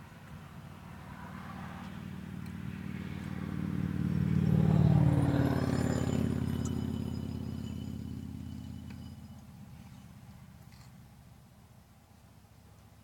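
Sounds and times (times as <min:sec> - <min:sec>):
vehicle driving past: 0:00.8 - 0:10.1.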